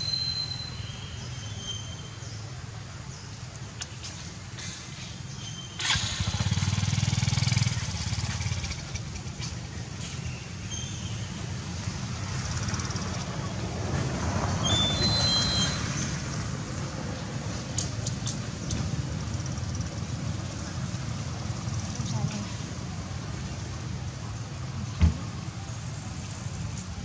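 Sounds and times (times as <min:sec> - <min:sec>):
vehicle engine running: 0:05.8 - 0:10.3.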